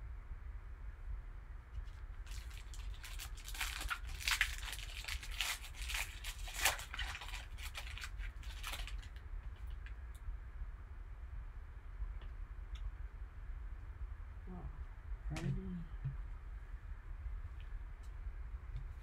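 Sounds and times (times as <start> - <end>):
foil wrapper tearing and crinkling: 2.2 - 9.8.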